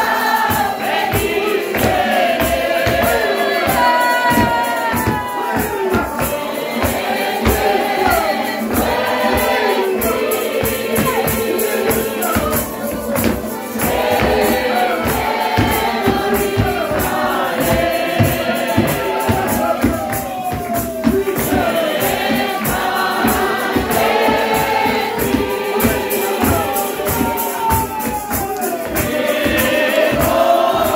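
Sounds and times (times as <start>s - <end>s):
live band accompaniment: 0.0s - 30.9s
many voices singing a hymn: 0.0s - 30.9s
steady percussion beat: 0.0s - 30.9s.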